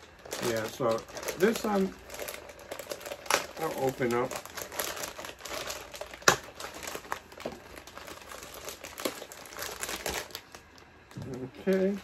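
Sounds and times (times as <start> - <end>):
plastic packaging crinkling: 0.0 - 12.0
plastic snapping: 6.1 - 7.7.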